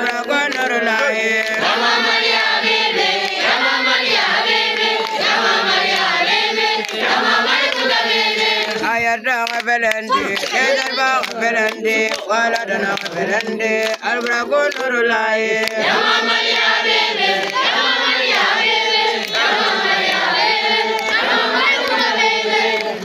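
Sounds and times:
boys chanting in unison: 0.0 - 23.0.

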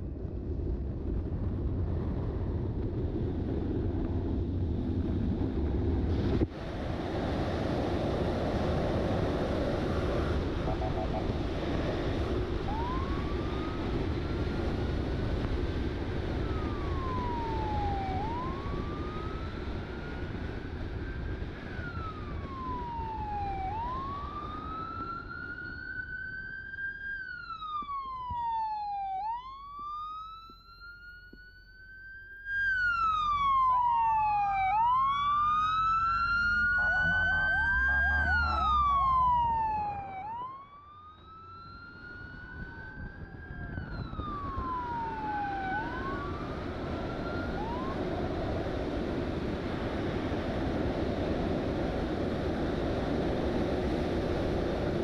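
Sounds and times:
police siren wailing: 9.1 - 51.6
second louder siren: 9.6 - 14.6, 16.1 - 50.7
wind on microphone: 41.8 - 55.0.

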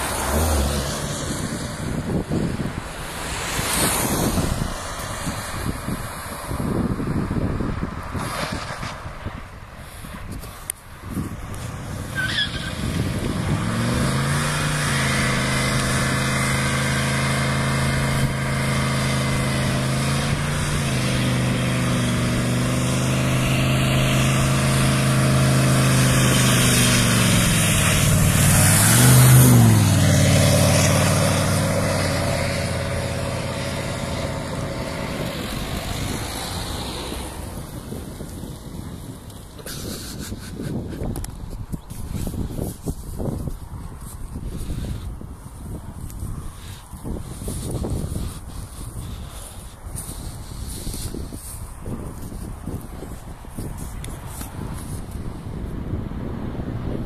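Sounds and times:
diesel engine revving high: 0.0 - 7.4, 11.6 - 38.9.

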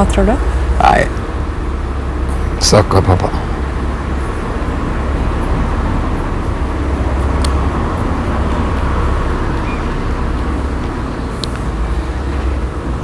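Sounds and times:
car driving rumble: 0.0 - 13.0.

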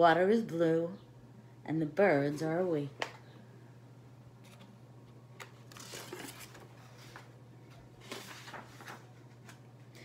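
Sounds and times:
steady low hum: 0.0 - 10.0
book pages rustling and turning: 4.4 - 9.6.

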